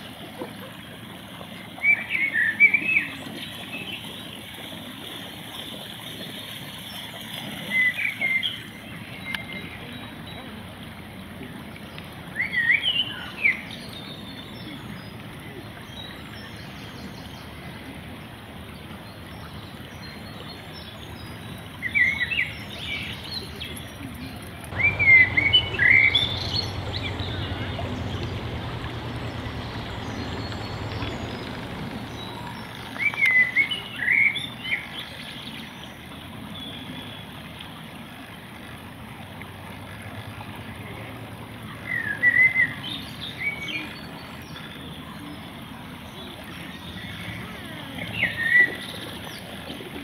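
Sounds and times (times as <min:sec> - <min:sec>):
songbird chirping: 0:19.7 - 0:35.0.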